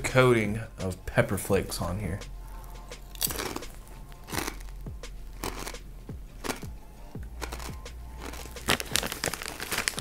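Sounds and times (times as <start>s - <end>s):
potato chip crunching: 3.0s - 5.8s, 6.4s - 6.7s, 7.3s - 10.0s.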